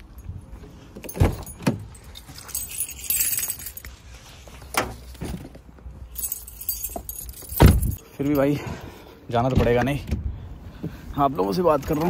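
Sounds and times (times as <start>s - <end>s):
keys jangling: 1.0s - 4.0s, 6.0s - 8.5s.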